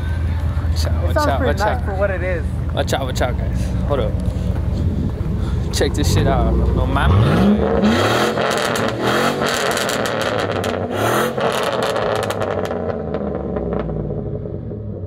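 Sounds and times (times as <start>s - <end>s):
pickup truck engine revving: 4.4s - 15.0s.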